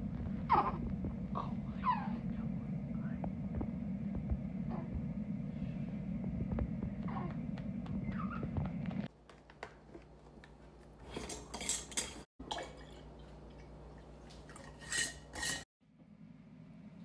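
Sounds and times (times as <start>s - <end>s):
low muffled noise: 0.0s - 9.1s.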